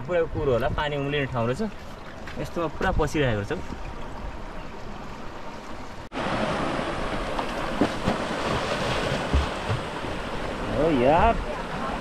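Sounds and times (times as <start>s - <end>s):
stream rushing over rocks: 5.5s - 12.0s.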